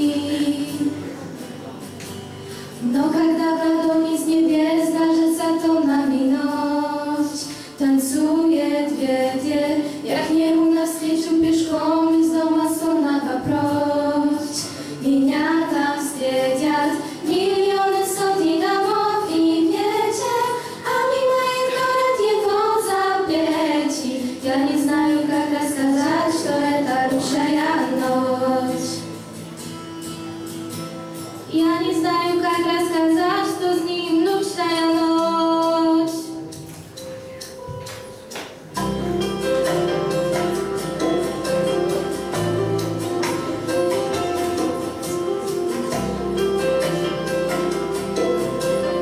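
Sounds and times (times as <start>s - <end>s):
girls singing into microphones: 0.0s - 29.3s, 31.5s - 37.2s.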